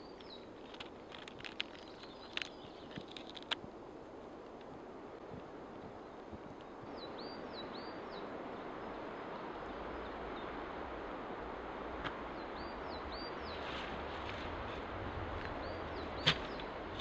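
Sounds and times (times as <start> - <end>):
small bird calling: 15.5 - 17.0.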